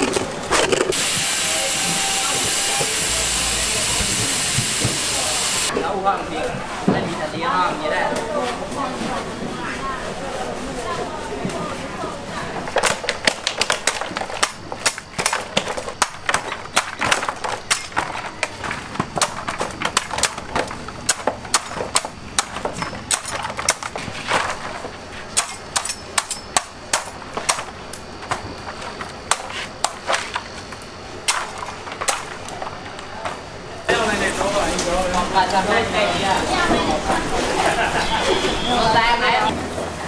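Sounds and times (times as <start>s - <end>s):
coconuts dropping into plastic basket: 12.7s - 24.9s
cleaver chopping coconuts: 12.8s - 24.6s, 25.3s - 28.5s, 29.2s - 30.4s.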